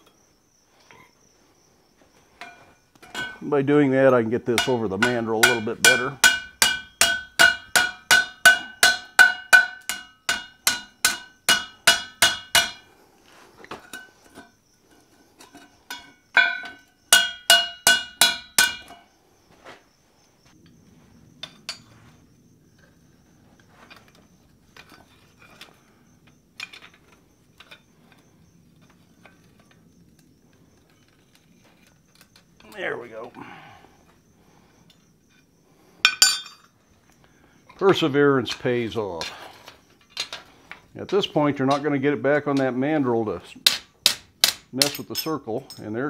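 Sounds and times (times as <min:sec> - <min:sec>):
hammer ringing on iron: 0:04.5 - 0:12.8, 0:15.9 - 0:19.0
faint metal clinks: 0:34.8 - 0:36.8.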